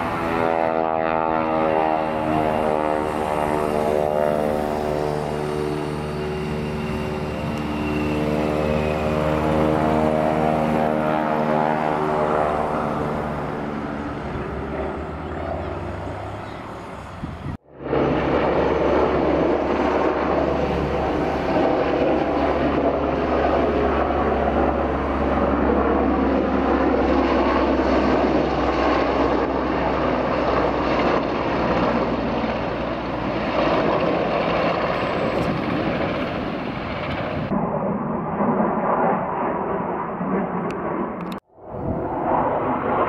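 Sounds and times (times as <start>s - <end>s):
aircraft flying overhead: 0.0s - 43.0s.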